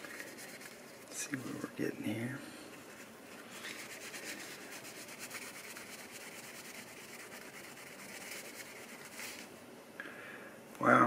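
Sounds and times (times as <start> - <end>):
hand rubbing toy car: 0.0 - 1.6, 2.8 - 9.5.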